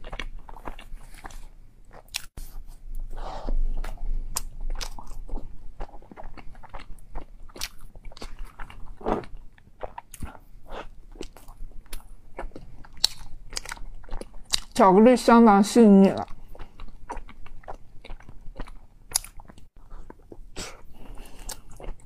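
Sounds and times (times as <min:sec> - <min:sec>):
person chewing soft bread: 0:00.0 - 0:14.8, 0:16.2 - 0:22.0.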